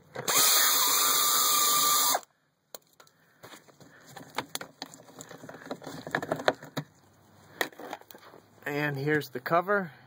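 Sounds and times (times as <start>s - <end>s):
power drill whining: 0.2s - 2.3s.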